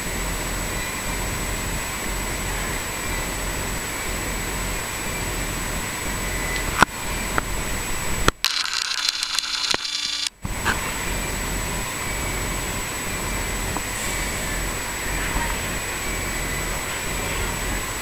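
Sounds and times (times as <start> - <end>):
fan-like room hiss: 0.0 - 8.4, 10.4 - 18.0
camcorder zoom motor whirring: 8.4 - 10.3.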